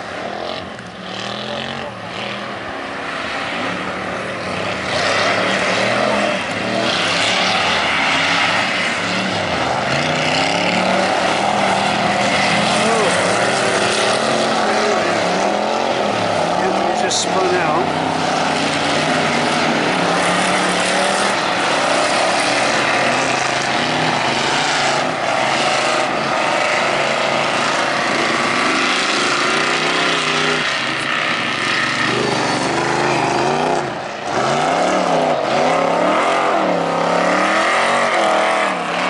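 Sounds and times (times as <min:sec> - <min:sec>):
stock car engine revving: 0:00.0 - 0:39.0.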